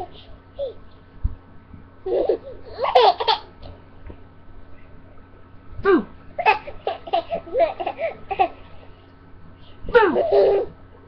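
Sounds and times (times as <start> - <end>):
baby laughing and giggling: 0.0 - 0.8, 2.0 - 3.6, 6.4 - 8.8, 10.0 - 10.8.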